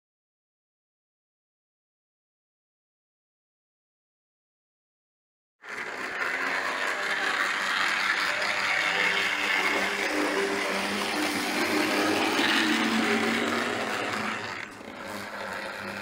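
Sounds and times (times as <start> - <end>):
model train motor whirring: 5.6 - 16.0
wheels on rails: 5.6 - 16.0.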